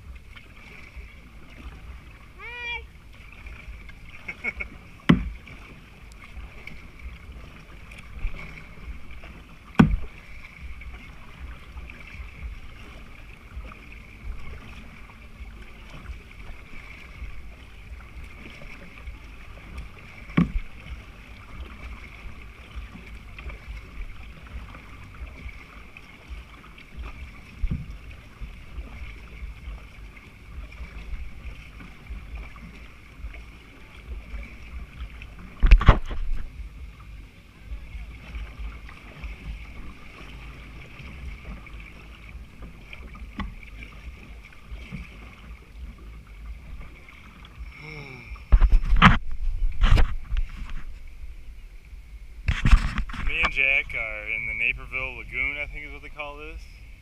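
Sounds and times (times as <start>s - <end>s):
wind rumble on microphone: 0.0s - 55.4s
kayak paddling: 0.0s - 57.0s
water lapping: 0.0s - 57.0s
sharp knocks: 5.1s - 5.4s, 9.8s - 10.1s.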